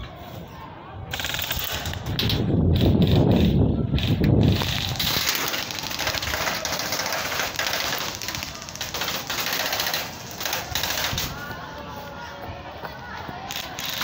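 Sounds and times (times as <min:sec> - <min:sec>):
airsoft guns firing: 0:01.1 - 0:11.4, 0:13.5 - 0:14.0
sharp cracks: 0:01.1 - 0:11.4, 0:13.5 - 0:14.0.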